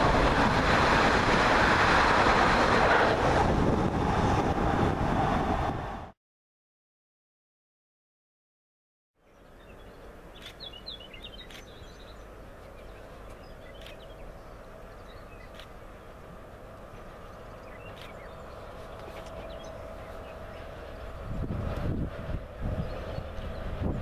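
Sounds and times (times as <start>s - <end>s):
distant diesel locomotive rumble: 0.0s - 6.2s, 9.2s - 24.0s
birds chirping: 9.2s - 16.3s, 16.9s - 21.4s.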